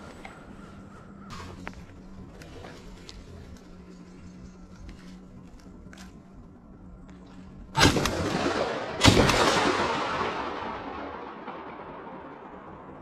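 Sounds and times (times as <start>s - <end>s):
shotgun shots echoing: 7.8s - 12.6s.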